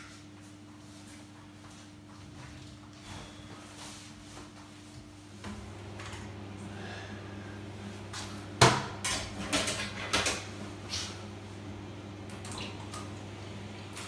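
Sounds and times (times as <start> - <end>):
steady low hum: 0.0 - 14.0
washing machine clunk: 8.6 - 10.5.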